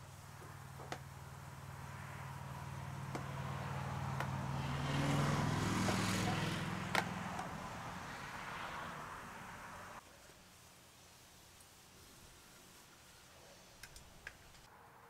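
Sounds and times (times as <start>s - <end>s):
car passing by: 0.5s - 10.0s.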